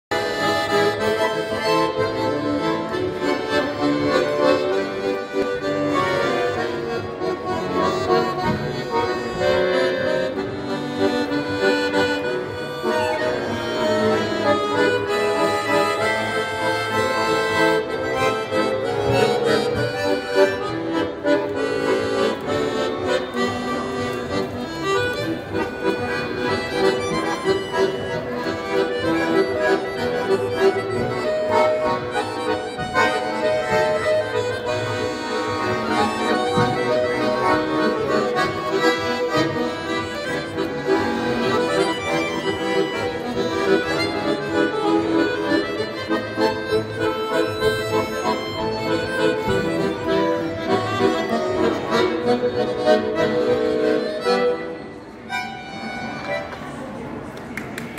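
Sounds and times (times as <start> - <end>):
accordions playing a tune: 0.0 - 57.8.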